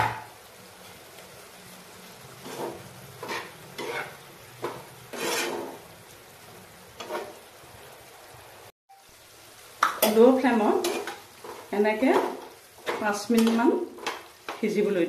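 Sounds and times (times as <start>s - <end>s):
faint sizzle of simmering curry: 0.0s - 15.0s
spatula scraping frying pan: 2.4s - 5.9s, 7.0s - 7.5s, 10.7s - 14.6s.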